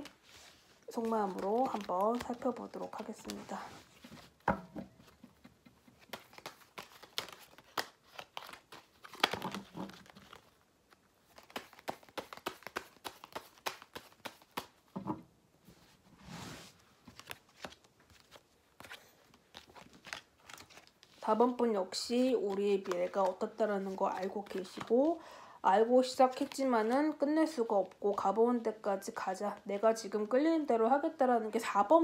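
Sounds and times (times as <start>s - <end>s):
cards clicking and rustling: 0.8s - 3.4s, 4.0s - 14.9s, 17.0s - 21.2s, 22.2s - 25.2s.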